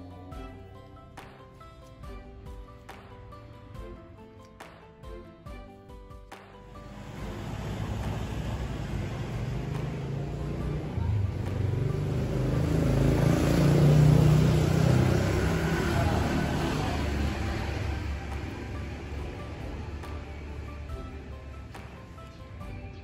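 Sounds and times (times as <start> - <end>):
vehicle passing by: 6.7 - 23.0.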